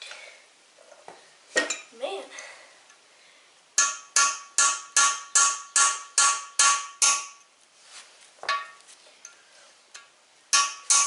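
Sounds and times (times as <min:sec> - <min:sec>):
hammer striking steel chisel: 0:03.8 - 0:07.5, 0:10.5 - 0:11.0.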